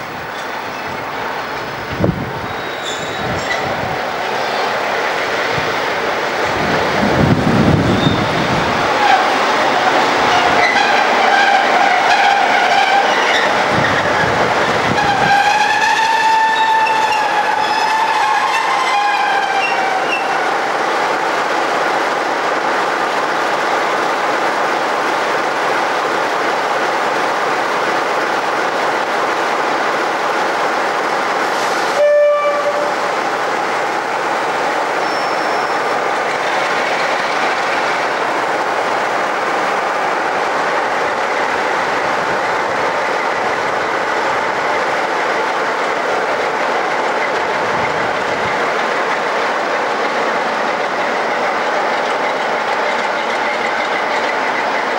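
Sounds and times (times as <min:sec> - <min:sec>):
diesel locomotive running: 0:00.0 - 0:54.9
locomotive horn blast: 0:14.9 - 0:20.4, 0:32.0 - 0:33.1.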